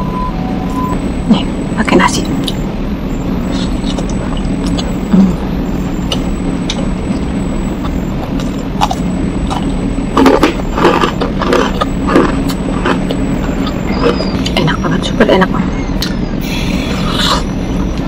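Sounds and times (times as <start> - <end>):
steady low hum: 0.0 - 18.0
close chewing of food: 6.0 - 14.5.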